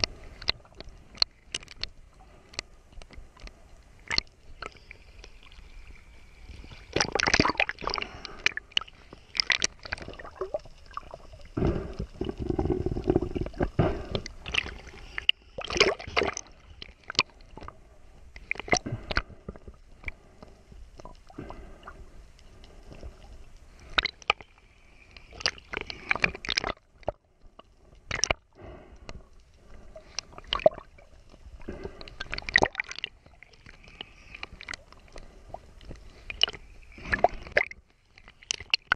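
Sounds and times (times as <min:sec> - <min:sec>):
water splashes: 0:03.5 - 0:17.7, 0:23.8 - 0:27.2, 0:29.7 - 0:38.9
seawater sloshing and gurgling: 0:04.0 - 0:19.2, 0:25.3 - 0:27.2, 0:29.7 - 0:38.9.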